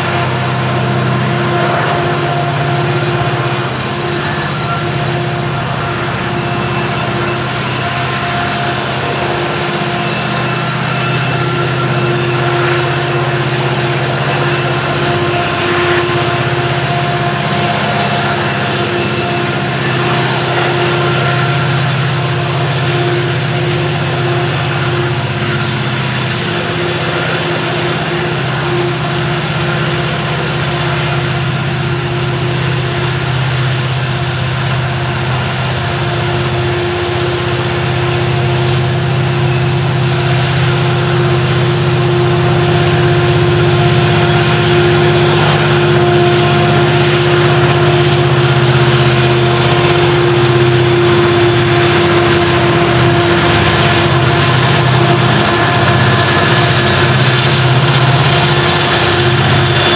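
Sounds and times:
diesel locomotive drone: 0:00.0 - 0:59.9
train cars rolling past: 0:00.0 - 0:59.9.

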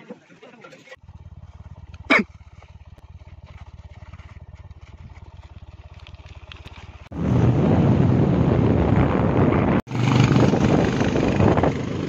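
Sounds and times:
motorcycle engine low revs: 0:01.0 - 0:08.7
wind rushing on microphone: 0:07.1 - 0:12.0.

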